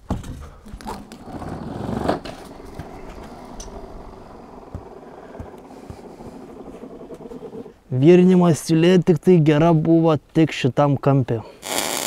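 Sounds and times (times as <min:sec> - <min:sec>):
rattle: 0:02.2 - 0:07.7
sharp knocks: 0:04.6 - 0:07.2.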